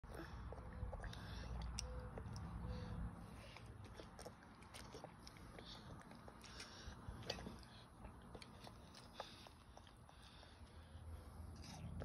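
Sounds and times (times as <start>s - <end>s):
wet mouth clicks eating: 0.4s - 2.6s, 3.5s - 10.4s.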